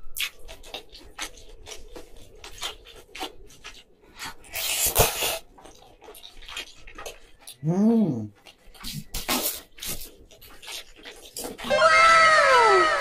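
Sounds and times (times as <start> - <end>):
wet eating clicks and smacks: 0.0 - 11.7
loud slurp of noodles: 4.5 - 5.5.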